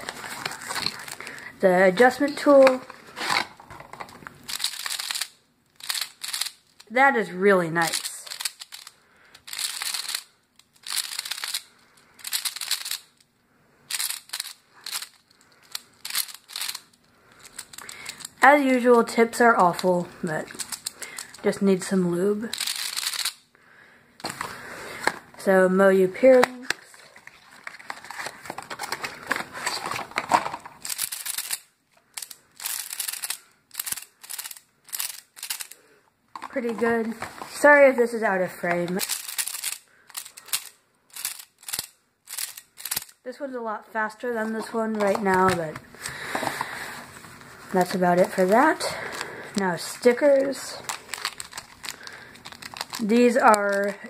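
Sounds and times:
plastic bag and cardboard crinkling: 0:00.0 - 0:04.9, 0:26.2 - 0:31.6, 0:44.4 - 0:54.0
plastic puzzle clicking and rattling: 0:02.0 - 0:07.2, 0:07.8 - 0:13.2, 0:13.9 - 0:23.4, 0:26.2 - 0:35.8, 0:38.6 - 0:43.2, 0:44.4 - 0:46.7, 0:47.8 - 0:54.0.

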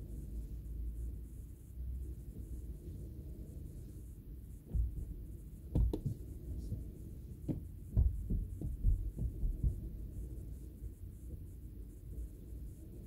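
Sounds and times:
steady low rumble: 0:00.0 - 0:13.0
dull low knocks and thumps: 0:04.3 - 0:12.9.

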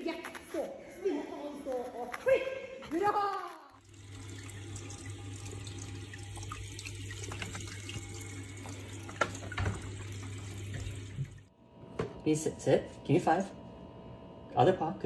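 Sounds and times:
water trickling: 0:03.8 - 0:11.5
filter motor hum: 0:03.8 - 0:11.9.

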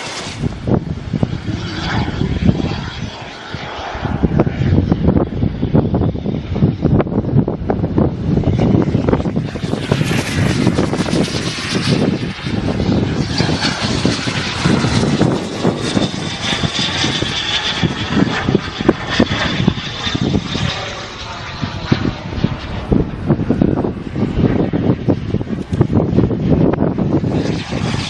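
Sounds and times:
model jet turbine hiss: 0:00.0 - 0:00.8
high turbine whine: 0:00.0 - 0:28.0
wind buffeting microphone: 0:00.0 - 0:28.0.

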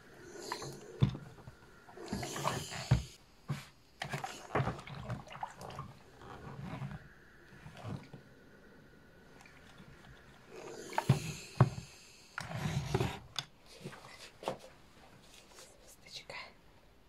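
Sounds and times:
steam iron hiss: 0:00.0 - 0:04.6, 0:10.3 - 0:13.2.

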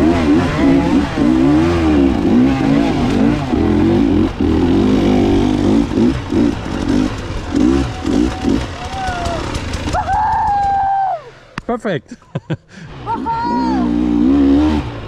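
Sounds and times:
dirt bike engine revving: 0:00.0 - 0:11.5, 0:12.8 - 0:15.0.

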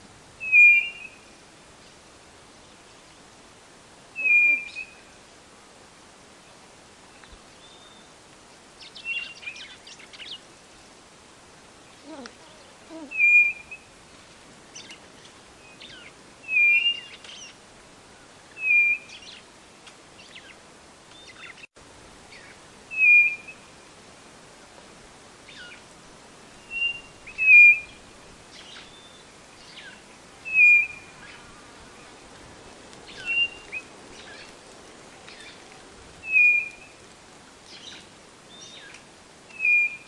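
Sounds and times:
downward-slurred bird calls: 0:04.2 - 0:05.0, 0:36.2 - 0:37.0.

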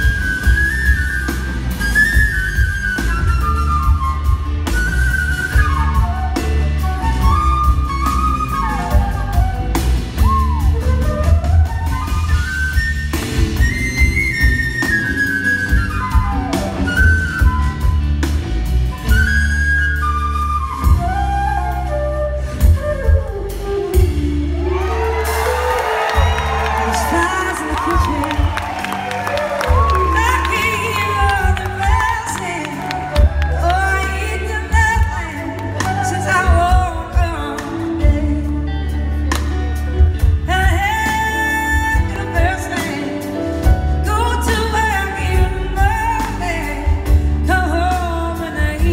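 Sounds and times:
flute solo: 0:00.0 - 0:48.9
live band music: 0:00.0 - 0:48.9
audience cheering and whooping: 0:24.4 - 0:34.4.

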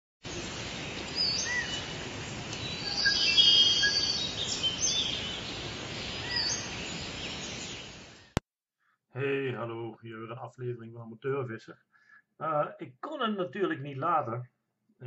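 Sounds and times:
songbirds singing and calling: 0:00.3 - 0:08.4
steady hiss: 0:00.3 - 0:08.4.

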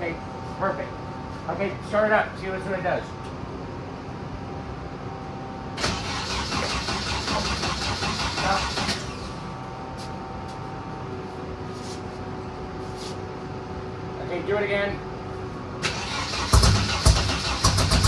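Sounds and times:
steady hum: 0:00.0 - 0:18.0
car engine cranking: 0:05.8 - 0:09.4, 0:15.8 - 0:18.0.

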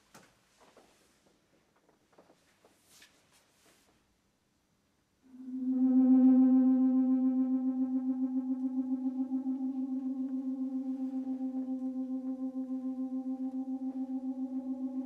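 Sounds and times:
pulsing low electronic note: 0:05.3 - 0:15.0.

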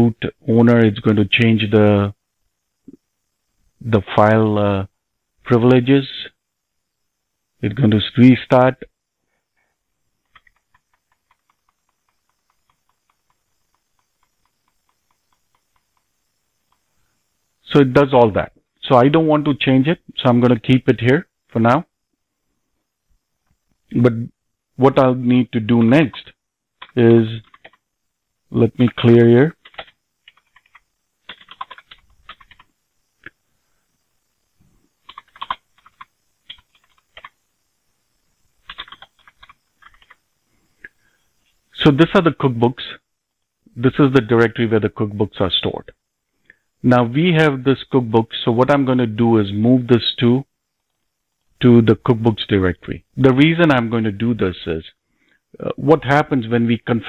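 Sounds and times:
keyboard typing: 0:10.2 - 0:16.8, 0:25.8 - 0:27.9, 0:28.8 - 0:32.8, 0:35.0 - 0:37.4, 0:38.6 - 0:40.2.

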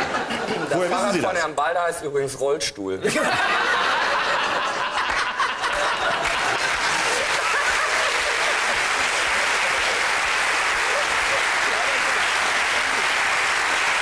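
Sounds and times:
audience laughing: 0:00.0 - 0:00.9, 0:03.0 - 0:13.8
audience applauding: 0:03.9 - 0:14.0.

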